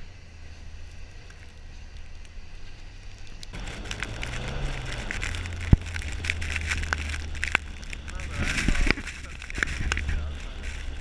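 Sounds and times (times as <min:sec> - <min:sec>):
tyres crackling on snow: 0:00.0 - 0:11.0
car engine revving: 0:03.5 - 0:11.0.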